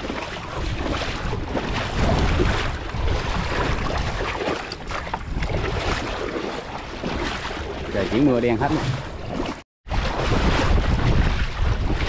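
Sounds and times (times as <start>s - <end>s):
person wading through water: 0.0s - 12.0s
wind buffeting microphone: 0.4s - 6.2s, 9.9s - 12.0s.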